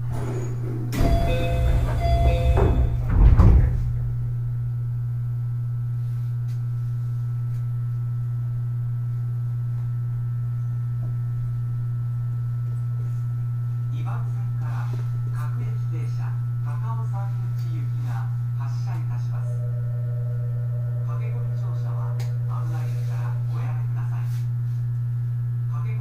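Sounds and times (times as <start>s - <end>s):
sliding doors opening: 0.0s - 4.1s
low electrical hum: 0.0s - 26.0s
chime tones: 19.5s - 23.4s.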